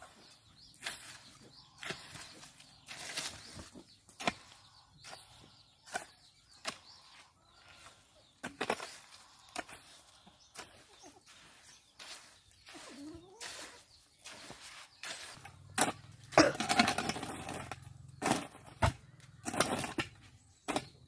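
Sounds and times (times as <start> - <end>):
hoe scraping through wet mortar: 0.6 - 21.0.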